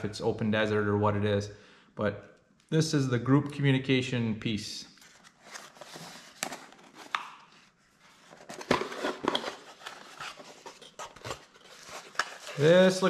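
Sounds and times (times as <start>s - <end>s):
cardboard rustling and scraping: 5.0s - 13.0s.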